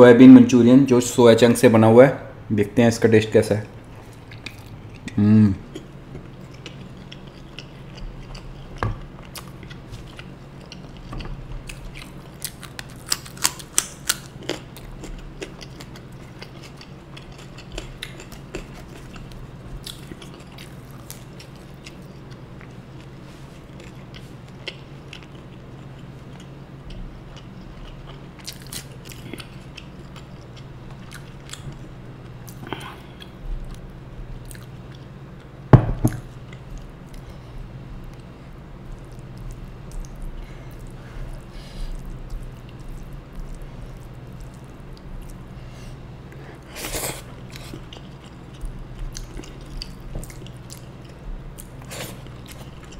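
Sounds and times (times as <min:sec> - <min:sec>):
steady low hum: 0:00.0 - 0:52.9
close chewing and biting: 0:04.1 - 0:23.1, 0:23.7 - 0:31.8, 0:46.8 - 0:52.9.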